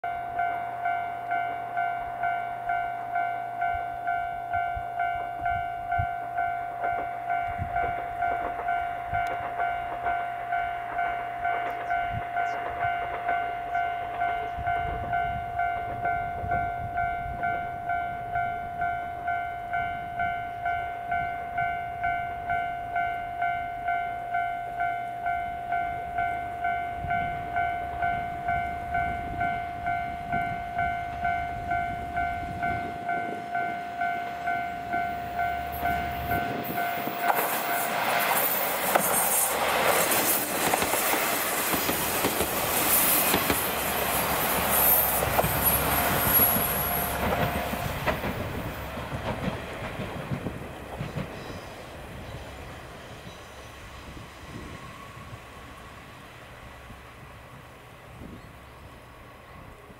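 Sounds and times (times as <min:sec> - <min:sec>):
level crossing alarm dinging: 0:00.0 - 0:38.8.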